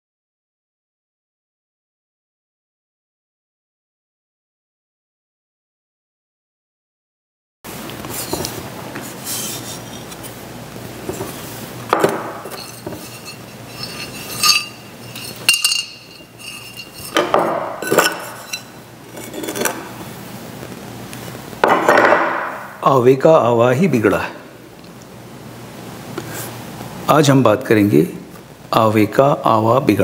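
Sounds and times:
clay bowl scraping: 7.9s - 10.4s, 11.0s - 20.0s
sharp clinks and knocks: 11.9s - 19.7s.

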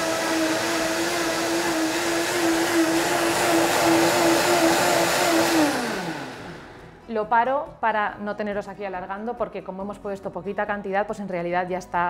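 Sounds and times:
blender motor running: 0.0s - 7.0s.

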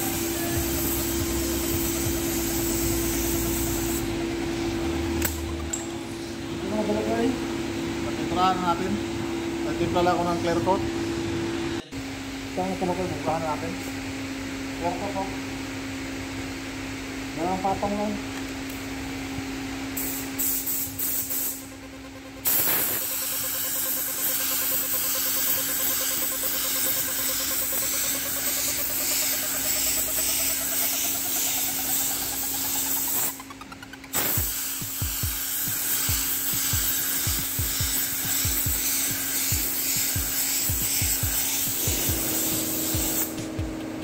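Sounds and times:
paint spray gun hissing: 0.0s - 4.2s, 19.9s - 33.4s, 34.1s - 43.7s.

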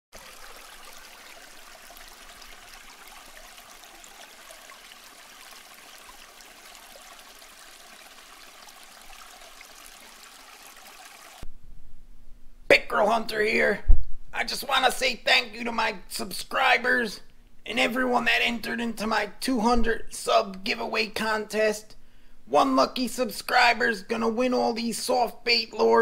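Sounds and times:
running water trickling: 0.1s - 11.4s.

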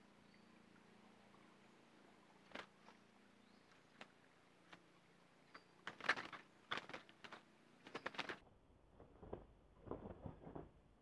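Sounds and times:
bird fluttering against wire mesh: 2.5s - 3.0s, 3.8s - 4.9s, 5.8s - 8.4s, 9.0s - 10.9s
soft clicks and rustles: 3.6s - 10.8s.

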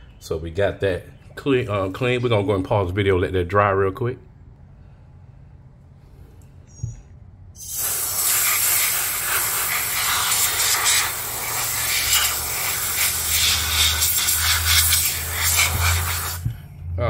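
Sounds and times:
air blow gun hissing: 7.6s - 16.6s.

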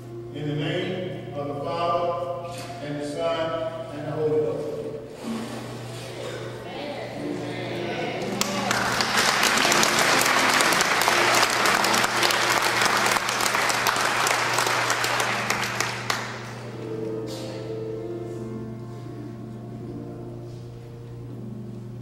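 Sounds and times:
music with held notes: 0.0s - 22.0s
congregation applauding: 8.2s - 16.9s.

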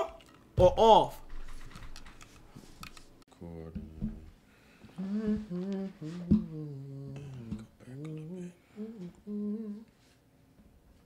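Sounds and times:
man humming: 5.0s - 9.9s.

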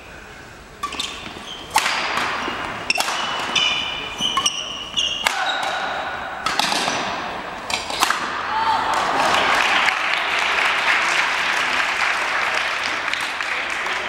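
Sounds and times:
shoes squeaking on wooden floor: 0.8s - 1.7s, 2.4s - 5.6s
rackets hitting shuttlecock: 0.8s - 8.5s.

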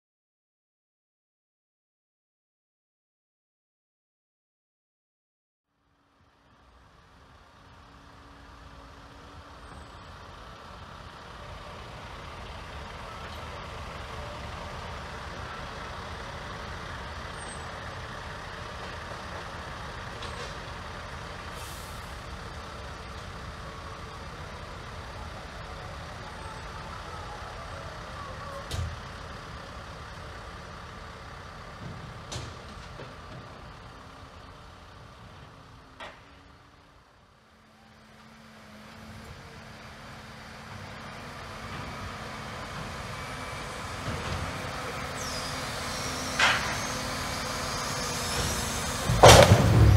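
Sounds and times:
heavy truck engine running: 5.8s - 49.9s
sharp knocks: 49.0s - 49.9s.

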